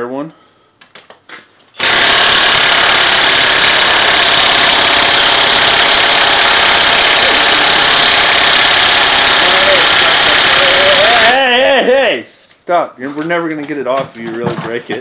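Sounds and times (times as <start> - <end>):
pneumatic impact wrench hammering: 1.8 - 11.4.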